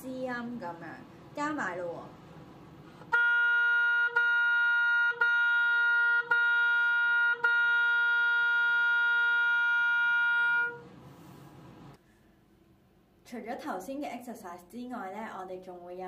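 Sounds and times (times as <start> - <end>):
oboe playing one note: 3.0 - 10.9.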